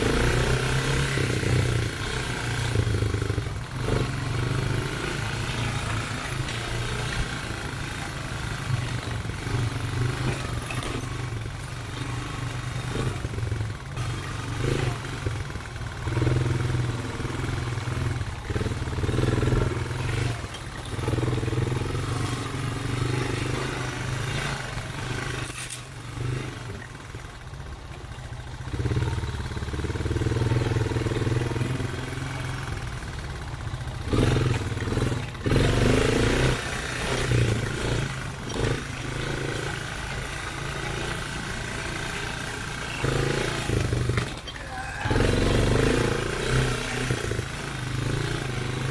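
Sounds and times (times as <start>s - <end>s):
quad bike engine revving: 0.0s - 48.9s.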